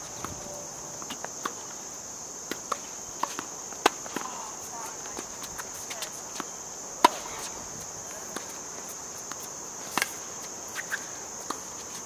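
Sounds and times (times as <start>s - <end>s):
high insect drone: 0.0s - 12.0s
tennis ball hit by racquet: 2.5s - 7.6s, 9.3s - 10.2s.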